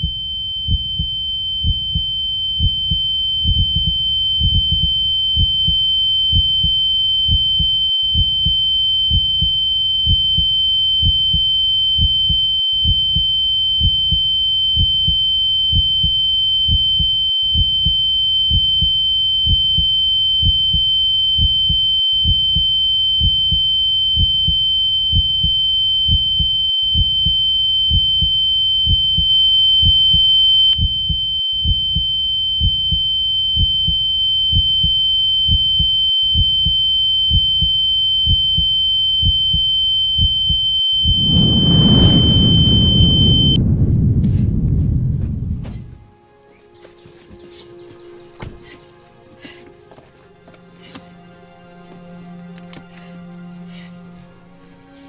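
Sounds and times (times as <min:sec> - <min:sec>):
high-pitched ringing tone: 0:00.0 - 0:43.6
faint lower tone: 0:00.0 - 0:46.1
heartbeat thumps: 0:00.0 - 0:46.1.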